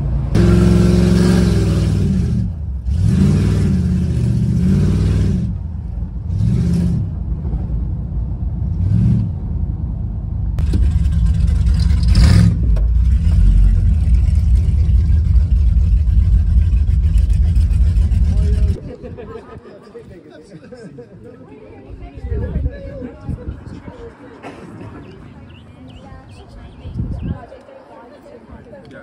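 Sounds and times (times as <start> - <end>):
car engine accelerating: 0.0 - 18.8.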